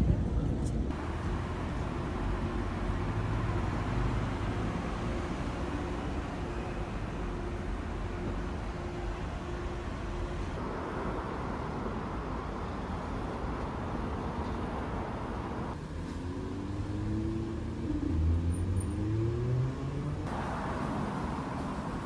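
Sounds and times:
road traffic noise: 0.0s - 22.0s
vehicle accelerating past: 15.8s - 21.6s.

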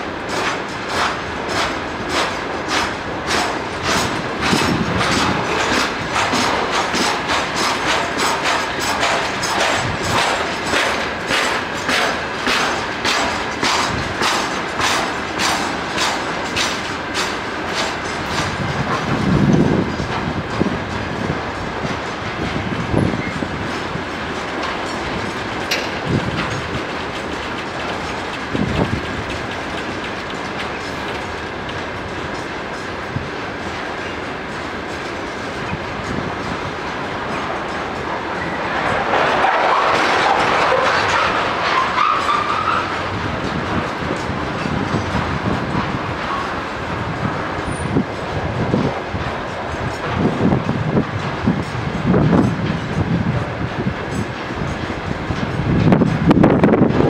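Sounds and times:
rumble and rattle of rolling wagons: 0.0s - 57.0s
train wheels clattering over rail joints: 0.0s - 57.0s.

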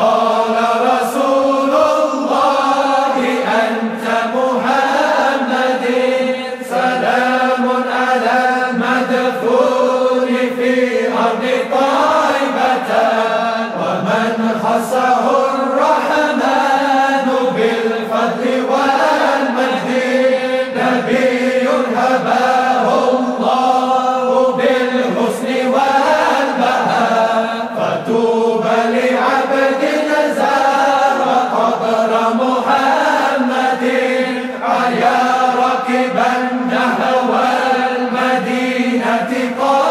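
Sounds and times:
voices chanting: 0.0s - 39.9s.

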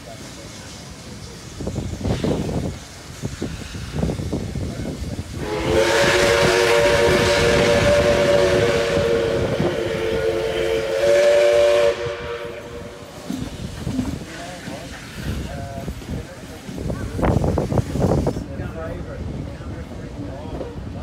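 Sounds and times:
steam hissing: 0.0s - 19.5s
moving train rumble: 0.0s - 21.0s
steam locomotive whistle: 5.4s - 13.2s.

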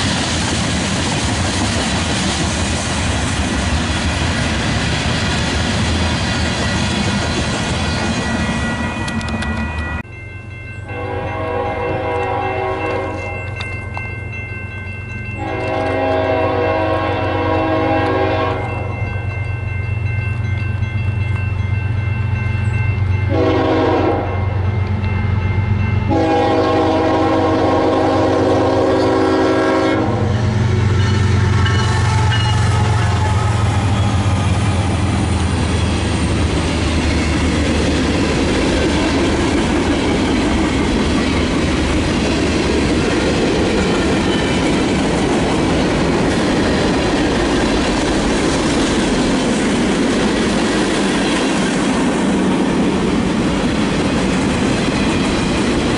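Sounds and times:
locomotive engine drone: 0.0s - 55.9s
train horn blasts: 10.9s - 13.5s, 15.4s - 18.9s, 23.2s - 24.6s, 26.1s - 34.3s.

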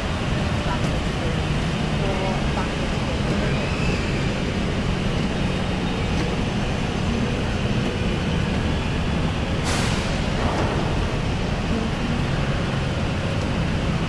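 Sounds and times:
low rumbling hall background: 0.0s - 14.0s
hiss of air: 9.6s - 10.4s.

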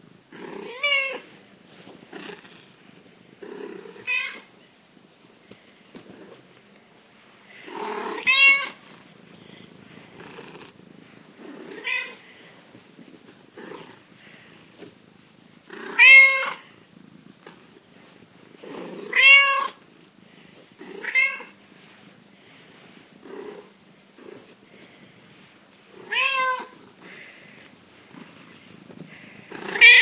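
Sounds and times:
cat meowing: 8.1s - 8.8s, 15.8s - 16.6s, 19.1s - 19.8s, 26.0s - 26.8s, 29.6s - 30.0s.

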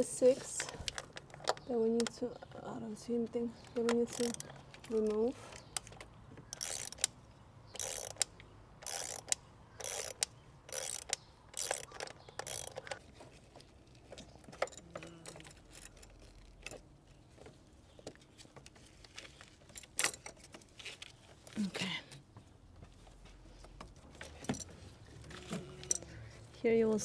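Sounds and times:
ratchet wrench clicking: 4.1s - 4.5s, 6.5s - 7.1s, 7.7s - 13.0s.

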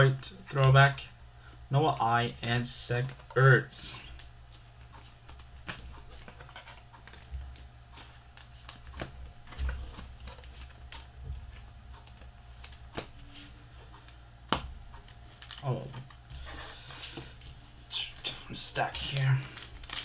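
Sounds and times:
cards clicking and tapping: 4.1s - 13.2s.

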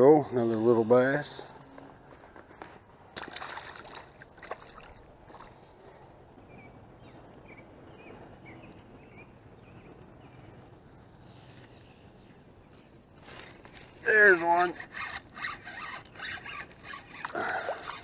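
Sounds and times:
fish splashing into water: 3.2s - 5.5s.

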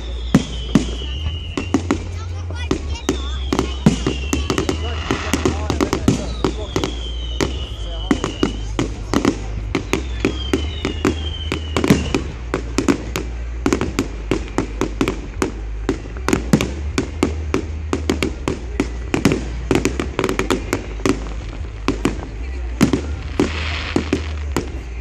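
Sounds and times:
whistling firework shells: 0.0s - 2.2s, 2.8s - 16.8s
fireworks bangs and crackles: 0.0s - 25.0s.

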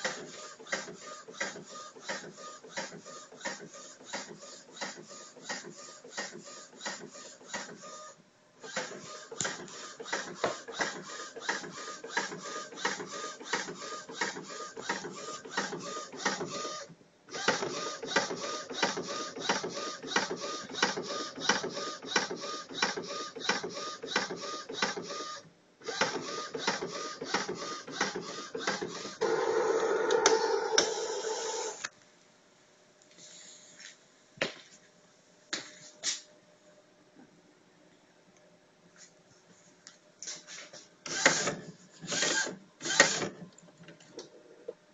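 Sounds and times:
printer whir: 0.0s - 31.9s
printer mechanism ticking: 8.7s - 16.7s.

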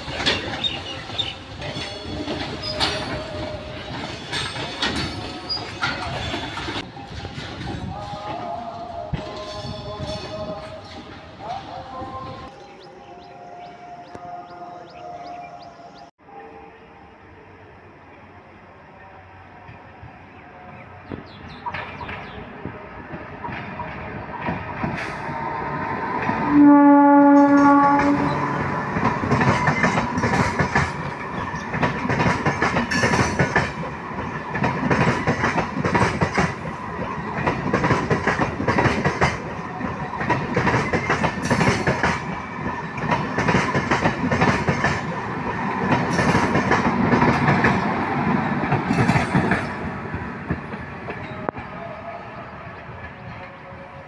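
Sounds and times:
train rumbling: 0.0s - 54.0s
train horn blast: 26.3s - 28.8s.

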